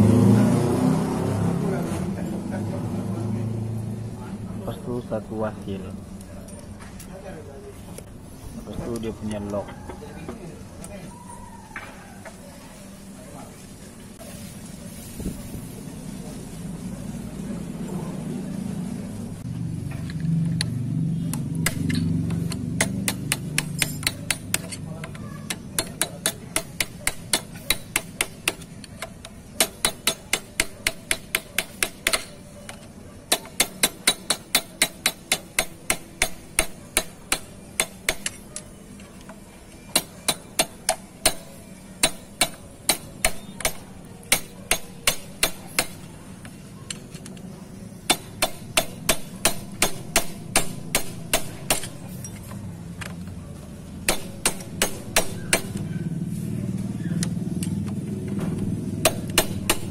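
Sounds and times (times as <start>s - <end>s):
hammer tapping metal punch: 21.6s - 38.7s, 39.9s - 46.1s, 48.1s - 52.4s, 54.1s - 55.9s, 59.0s - 59.9s.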